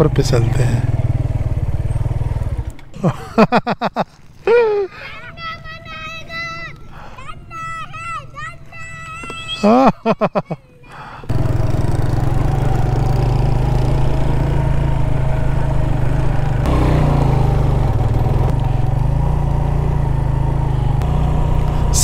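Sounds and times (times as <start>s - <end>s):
motorcycle engine running: 0.0s - 2.8s, 11.3s - 22.0s.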